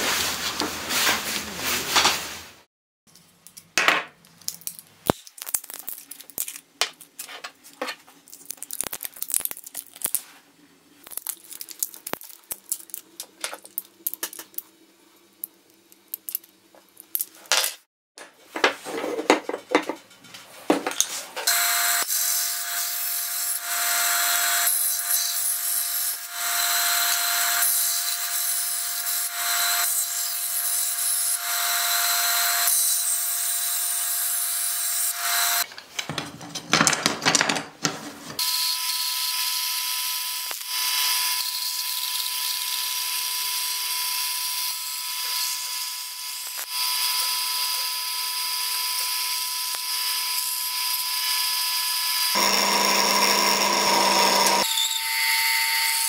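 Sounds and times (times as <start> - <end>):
band saw cutting wood: 21.4 - 35.6, 38.4 - 56.0.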